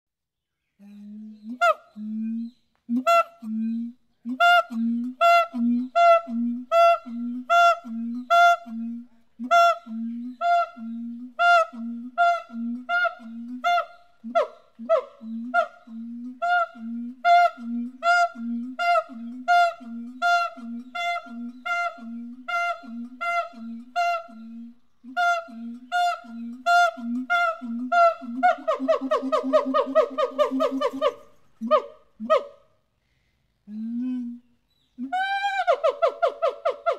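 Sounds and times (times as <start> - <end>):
gibbon hooting: 25.1 - 32.6
gibbon swooping calls: 25.1 - 32.6.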